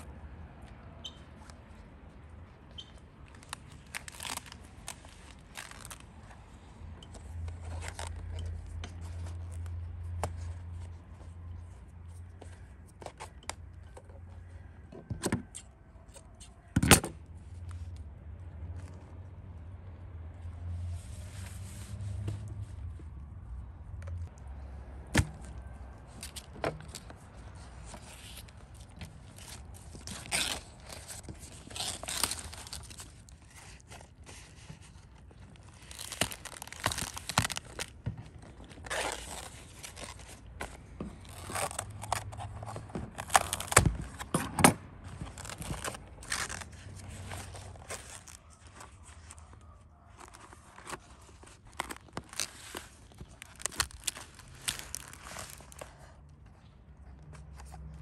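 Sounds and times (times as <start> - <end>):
banana leaves rustling: 3.3 - 6.2, 25.1 - 37.9, 38.6 - 42.5, 43.1 - 44.0, 45.2 - 49.5, 50.2 - 56.2.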